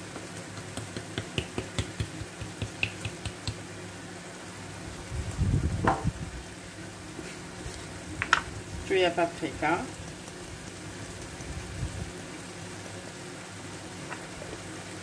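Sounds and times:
spice jar shaker clicking: 0.6s - 3.6s.

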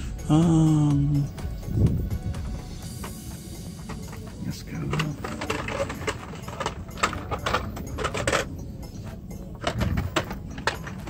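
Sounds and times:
blister packs clicking and rattling: 2.8s - 11.0s.

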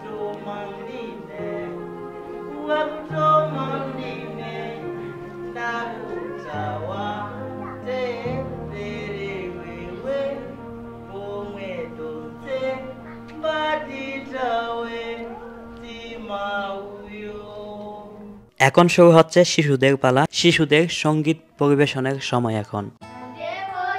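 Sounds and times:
person singing: 0.0s - 18.4s
low accompanying tones: 0.0s - 18.5s.

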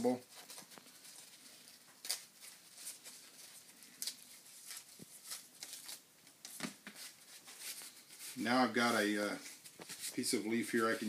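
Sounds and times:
dry leaf rustling and tearing: 0.4s - 6.0s.

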